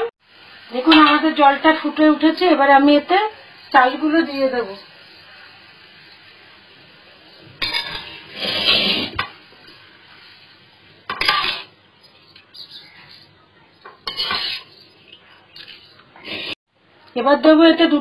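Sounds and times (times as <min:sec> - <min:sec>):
bowl clinking and scraping pot: 0:07.4 - 0:09.3, 0:11.1 - 0:16.1.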